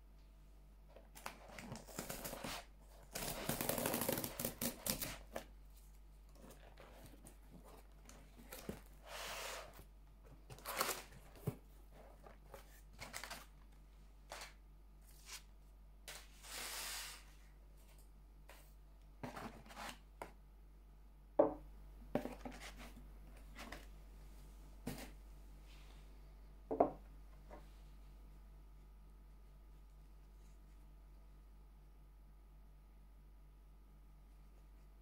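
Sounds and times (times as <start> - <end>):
packing paper rustling: 1.2 - 9.0, 10.4 - 15.5.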